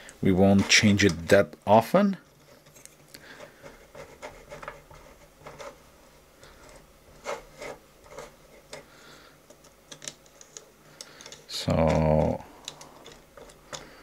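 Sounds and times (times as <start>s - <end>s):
soft rubbing: 2.3s - 9.0s.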